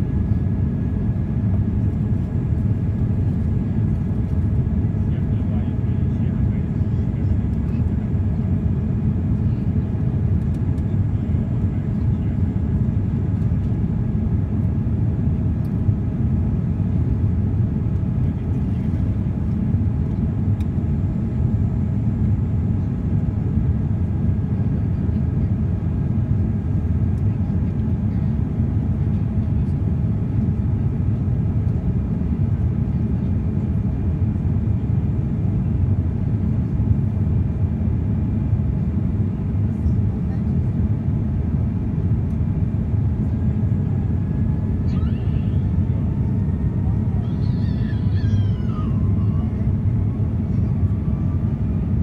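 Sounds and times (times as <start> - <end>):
jet engines rumbling: 0.0 - 52.0.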